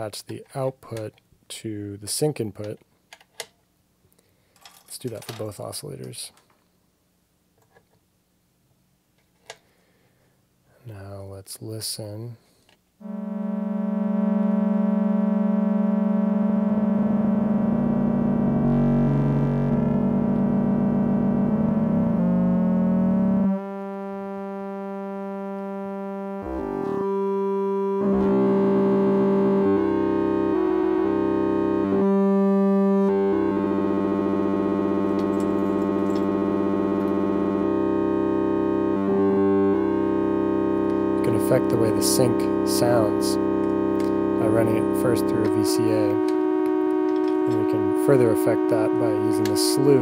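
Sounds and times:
buzzy synthesizer tone: 0:13.0 - 0:50.0.

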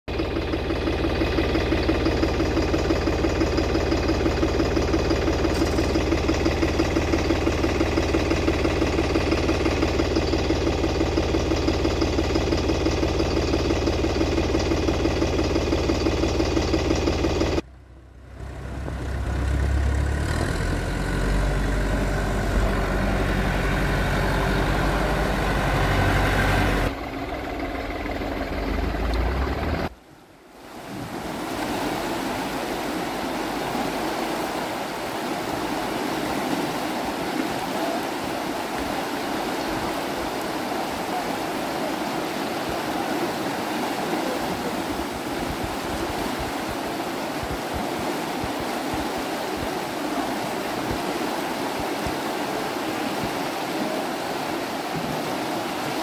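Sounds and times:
floodwater rushing: 0:00.1 - 0:17.6, 0:18.3 - 0:56.0
tractor engine rumbling: 0:00.1 - 0:30.2.

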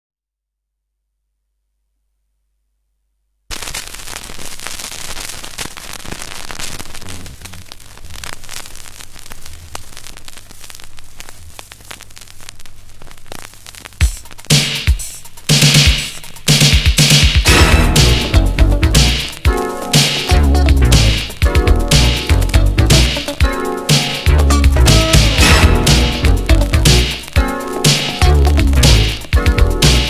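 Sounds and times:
vinyl crackle and hiss: 0:03.5 - 0:30.0
loud drum hit: 0:15.6 - 0:19.3, 0:24.3 - 0:27.1.

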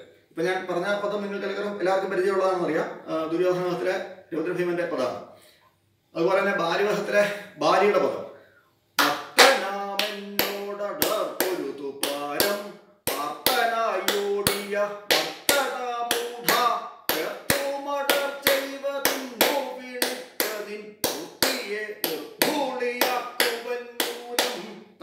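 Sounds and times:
sharp hand claps: 0:09.0 - 0:24.7
man singing long held notes: 0:09.0 - 0:24.9.

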